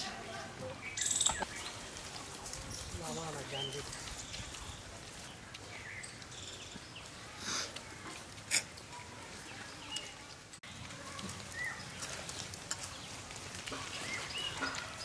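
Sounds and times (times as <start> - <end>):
rural outdoor ambience: 0.0 - 15.0
bird chirps: 0.8 - 1.8.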